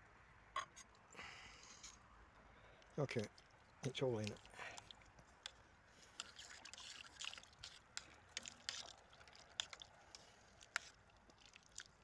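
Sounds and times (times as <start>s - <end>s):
liquid sloshing in pot: 3.2s - 12.0s.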